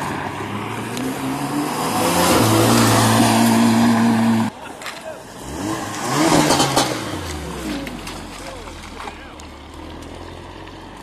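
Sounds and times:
traffic: 0.0s - 11.0s
car engine revving high: 0.2s - 4.5s, 5.4s - 7.7s
people talking: 4.5s - 5.3s, 8.3s - 9.5s.

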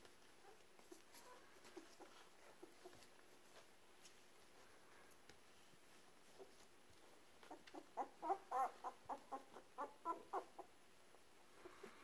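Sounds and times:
puppy whimpering: 0.2s - 3.3s, 7.4s - 10.8s.

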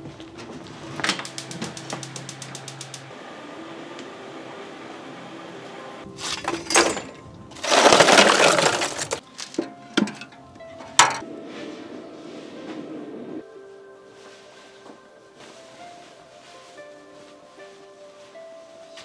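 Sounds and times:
gas stove igniter clicking: 1.1s - 3.1s
charcoal clattering: 6.1s - 11.2s.

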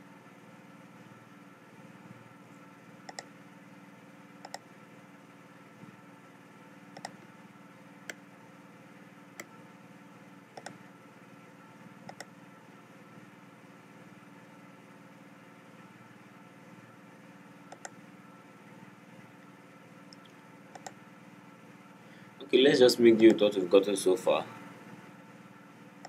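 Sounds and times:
steady low hum: 0.0s - 26.0s
computer mouse clicking: 3.1s - 3.3s, 4.4s - 4.6s, 7.0s - 7.2s, 10.6s - 10.8s, 12.1s - 12.3s, 17.7s - 18.0s, 20.1s - 21.0s.

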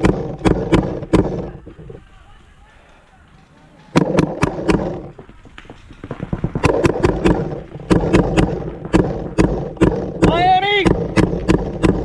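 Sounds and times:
faint clicks: 0.4s - 7.4s.

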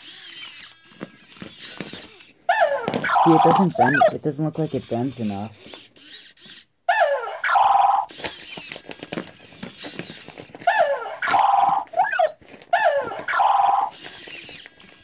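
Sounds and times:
robot dog electronic chirps: 2.6s - 4.2s, 6.9s - 8.1s, 10.7s - 14.0s.

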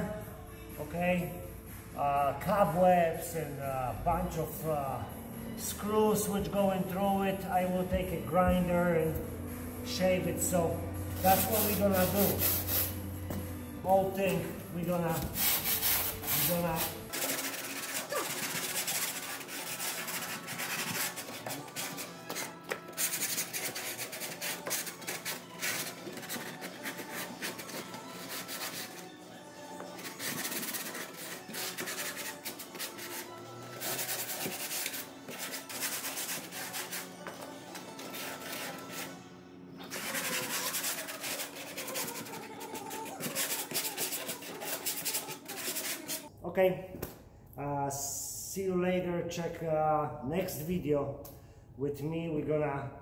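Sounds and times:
hand sanding wood: 11.2s - 13.1s, 13.9s - 29.0s, 29.8s - 37.4s, 38.0s - 39.1s, 39.9s - 46.3s.

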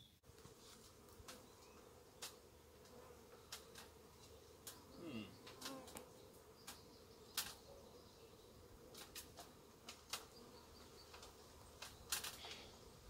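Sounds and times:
bee swarm humming: 0.2s - 13.0s
sharp snaps: 5.5s - 7.6s.

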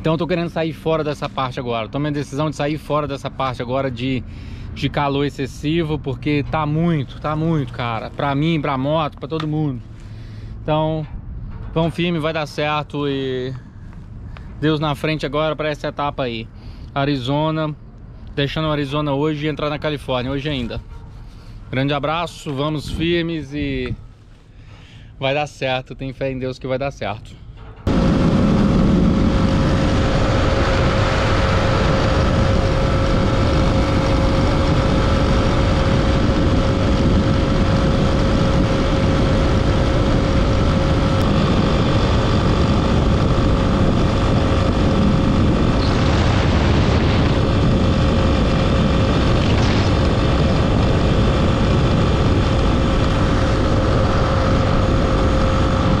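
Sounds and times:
heavy wind and road noise: 0.0s - 26.1s, 27.0s - 56.0s
motorcycle engine cruising: 27.8s - 56.0s.

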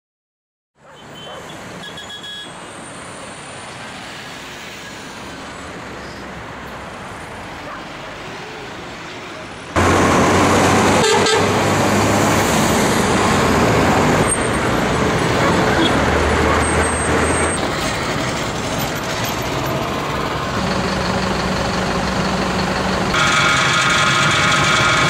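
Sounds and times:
bus passing close: 0.8s - 25.0s
distant traffic hum: 0.8s - 25.0s
vehicle horn: 1.0s - 2.6s, 10.9s - 11.8s.

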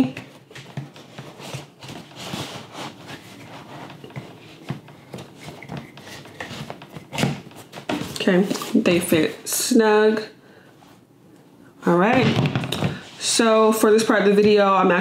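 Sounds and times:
fabric rustling and rubbing: 0.4s - 8.9s.

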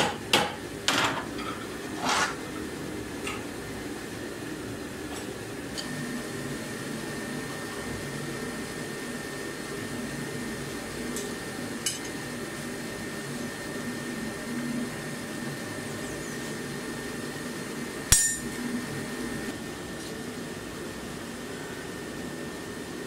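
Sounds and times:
metallic clang ringing: 18.1s - 18.6s.

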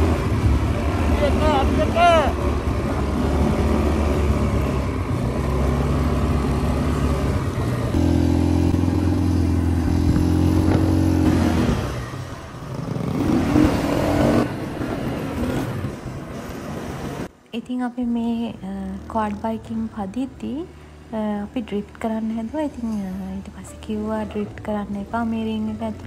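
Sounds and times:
quad bike engine running: 0.0s - 16.0s.

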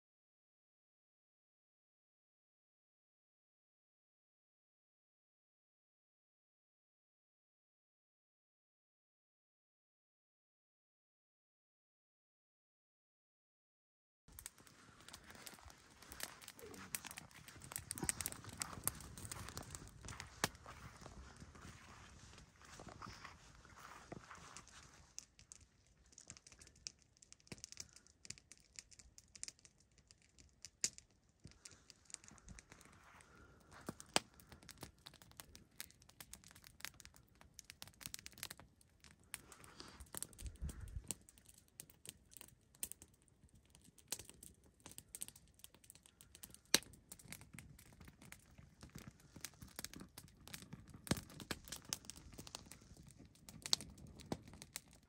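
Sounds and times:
campfire crackling and popping: 14.3s - 55.0s.

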